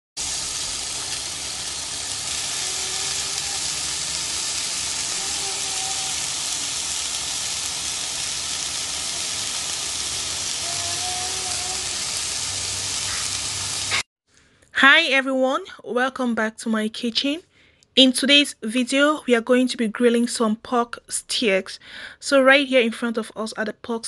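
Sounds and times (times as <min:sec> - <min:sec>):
meat sizzling on a grill: 0:00.2 - 0:14.0.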